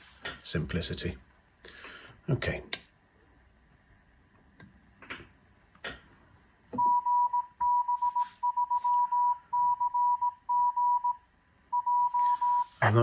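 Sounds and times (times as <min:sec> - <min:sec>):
morse code beeps: 0:06.8 - 0:12.8.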